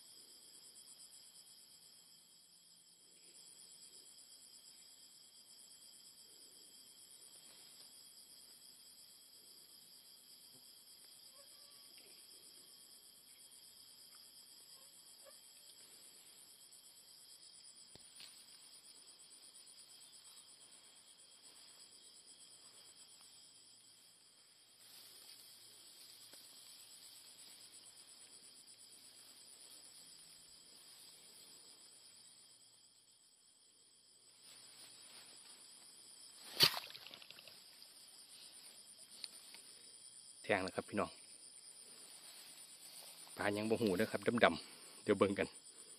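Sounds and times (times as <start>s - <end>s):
night insects trilling: 0.0s - 45.9s
spear splashing into water: 36.5s - 37.5s.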